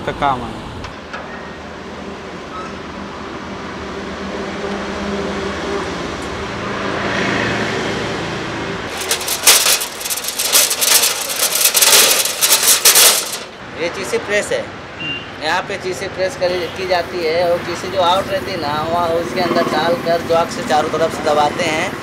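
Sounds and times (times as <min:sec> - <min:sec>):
metal bumper scraping over stones: 0:08.9 - 0:13.6.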